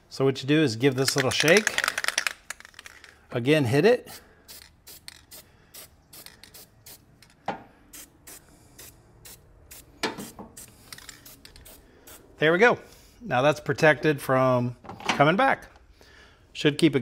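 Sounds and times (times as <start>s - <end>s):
aerosol spray hissing: 4.5s - 7.1s, 7.9s - 12.2s.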